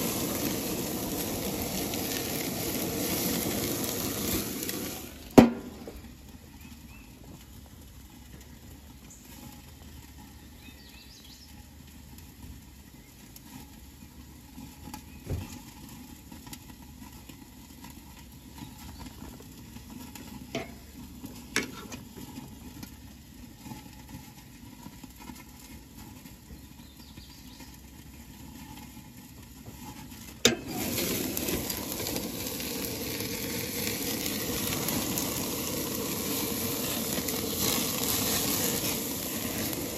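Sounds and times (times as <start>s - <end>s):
steaks sizzling on a grill: 0.0s - 39.9s
metal grill lid banging shut: 5.4s - 5.9s
grill lid clanking open: 5.4s - 6.0s, 20.5s - 20.8s, 21.5s - 22.0s, 30.4s - 32.2s.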